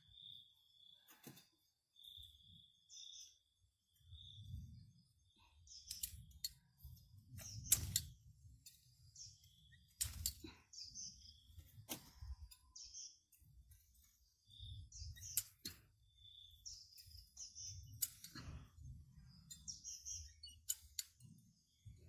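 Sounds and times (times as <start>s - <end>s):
small birds chirping: 0.0s - 22.0s
sharp clicks: 5.8s - 6.6s, 7.4s - 8.8s, 20.4s - 21.3s.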